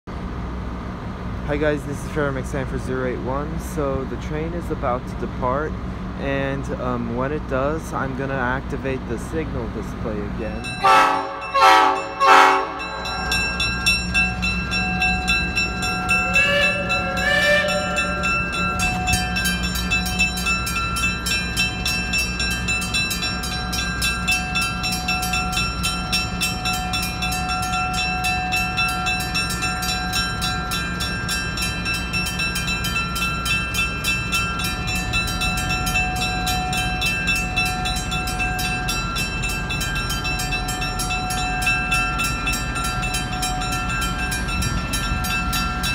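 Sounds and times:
locomotive running: 0.1s - 45.9s
mechanical crossing bell ringing: 10.4s - 45.9s
train horn blasts: 10.8s - 13.3s, 16.1s - 19.3s.

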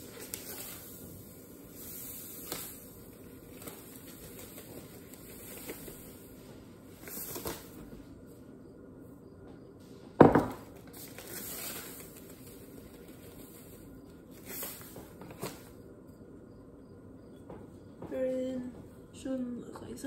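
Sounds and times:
paper bag rustling: 0.0s - 8.0s, 10.7s - 15.8s
sugar pouring into a cup: 0.1s - 6.3s.

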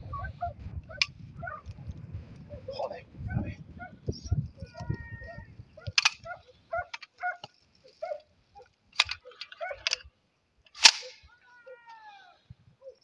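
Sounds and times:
dogs barking and yelping: 0.0s - 1.8s, 3.3s - 10.0s, 12.8s - 13.0s.

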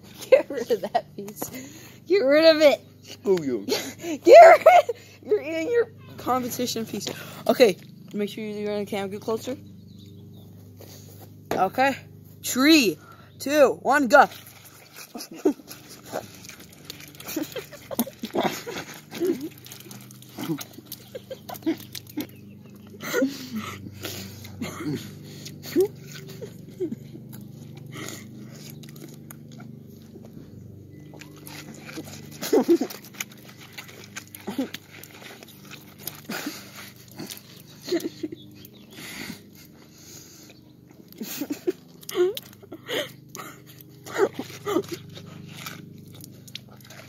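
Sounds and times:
wet crunching bites and slurps: 14.0s - 47.0s.

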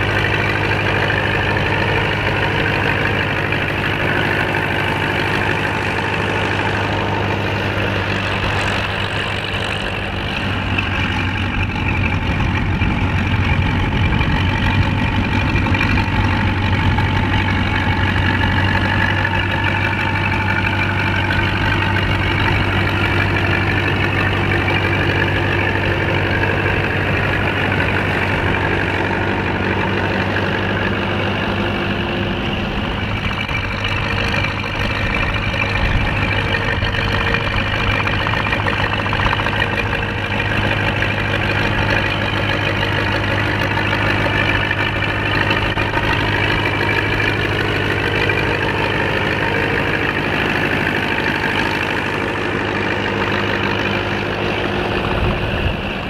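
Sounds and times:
tractor diesel engine: 0.0s - 56.0s.

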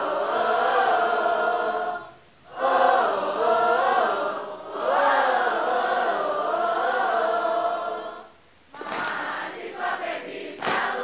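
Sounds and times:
group chanting a cheer: 0.0s - 11.0s
crowd noise: 7.3s - 11.0s.

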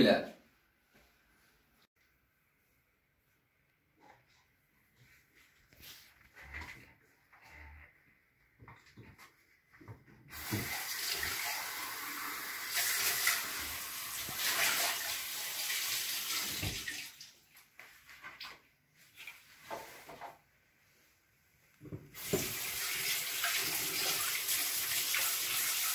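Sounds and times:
water running from a tap: 10.3s - 17.4s, 22.2s - 25.9s.

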